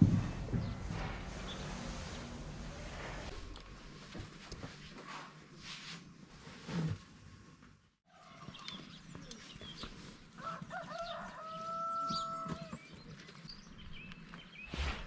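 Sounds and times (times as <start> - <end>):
small birds chirping: 8.2 - 15.0
rooster crowing: 10.4 - 12.8.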